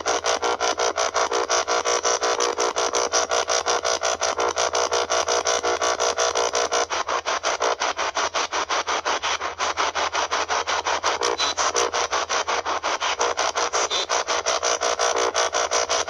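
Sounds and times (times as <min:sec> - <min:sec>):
radio static bursts: 0:11.1 - 0:16.0
snatches of radio sound: 0:11.2 - 0:14.4.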